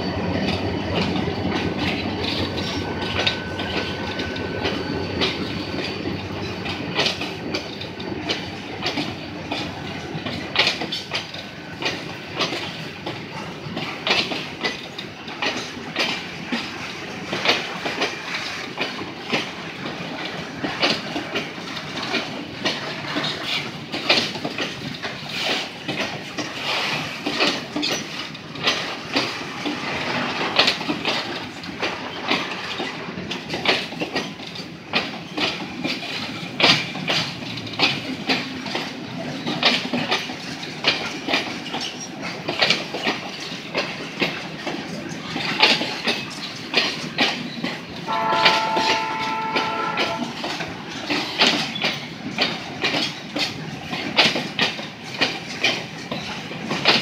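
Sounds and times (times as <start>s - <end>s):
train wheels rumbling and clacking: 0.0s - 57.0s
train horn chord: 48.1s - 50.6s.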